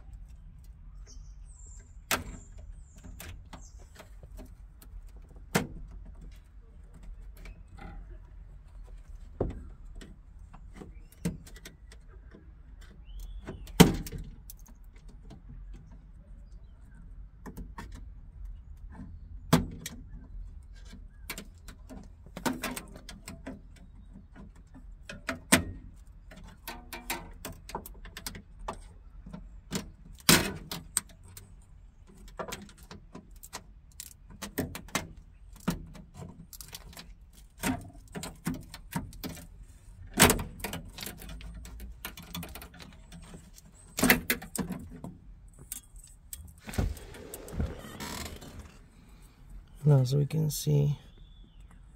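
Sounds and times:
clicks and knocks of prying: 0:20.8 - 0:39.5, 0:40.1 - 0:48.7.

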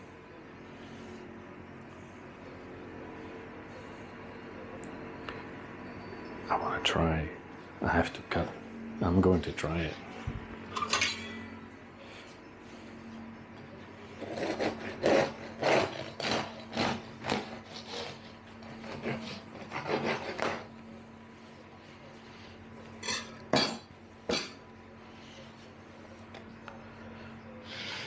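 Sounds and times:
knife sawing through bread crust: 0:14.2 - 0:20.7.

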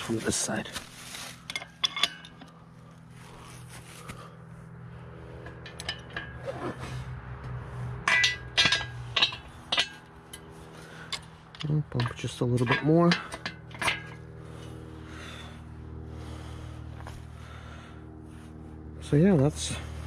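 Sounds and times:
steady low hum: 0:00.0 - 0:20.0
metal scrapes and clinks: 0:01.3 - 0:02.6, 0:05.3 - 0:07.1, 0:07.9 - 0:14.8.

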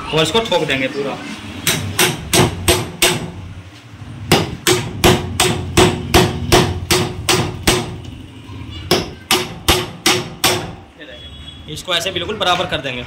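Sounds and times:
hammer striking metal: 0:01.6 - 0:03.4, 0:04.3 - 0:08.0, 0:08.9 - 0:10.8.

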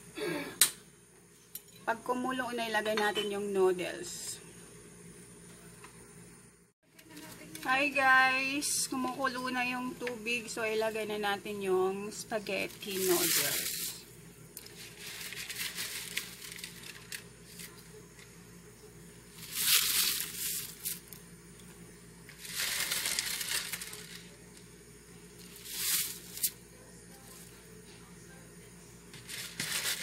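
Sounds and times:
steady low hum: 0:00.0 - 0:30.0
plastic pack crinkling: 0:12.7 - 0:14.0, 0:14.6 - 0:17.8, 0:19.4 - 0:21.0, 0:22.3 - 0:24.4, 0:29.2 - 0:30.0.

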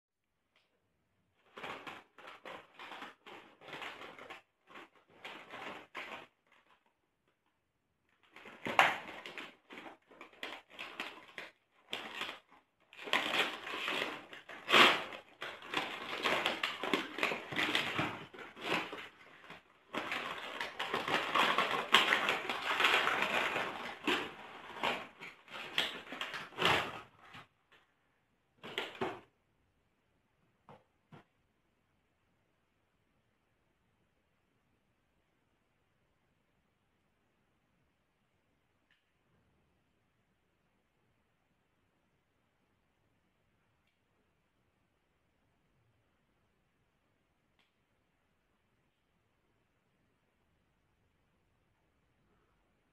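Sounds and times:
packaging crinkling and rustling: 0:01.4 - 0:07.0, 0:08.1 - 0:27.8, 0:28.6 - 0:29.3.

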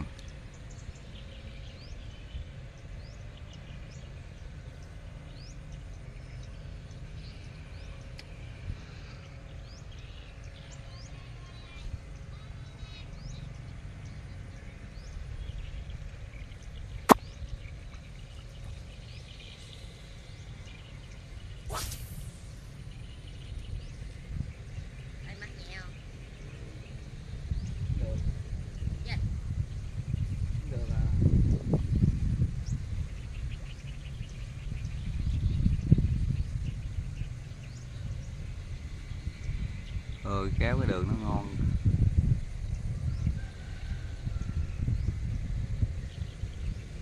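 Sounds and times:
faint bird chirps: 0:00.0 - 0:41.5, 0:42.6 - 0:45.3
steady low rumble: 0:00.0 - 0:47.0
brief hiss: 0:21.7 - 0:22.6.

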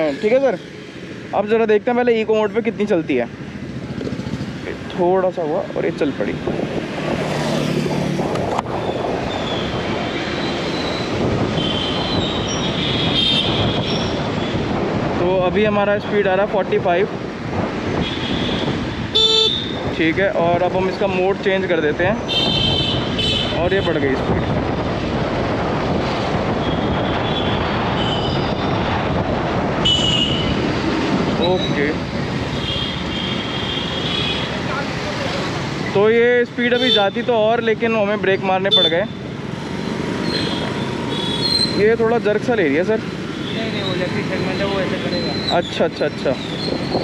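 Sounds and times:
road rumble: 0:00.0 - 0:47.0
wind noise: 0:03.3 - 0:36.0, 0:42.9 - 0:47.0.

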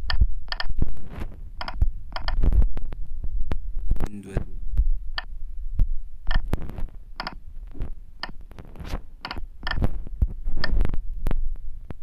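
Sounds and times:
low hum: 0:00.0 - 0:12.0
soft clicks: 0:06.3 - 0:06.5.

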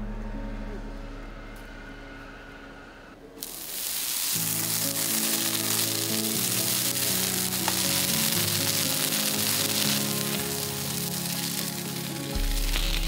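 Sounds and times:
steady hiss: 0:03.3 - 0:13.0
background music with held notes: 0:04.3 - 0:13.0.

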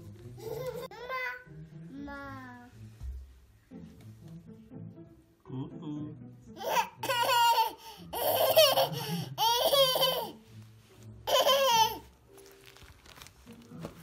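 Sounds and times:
baby girl laughing: 0:00.4 - 0:01.4, 0:06.6 - 0:10.4, 0:11.2 - 0:12.1.

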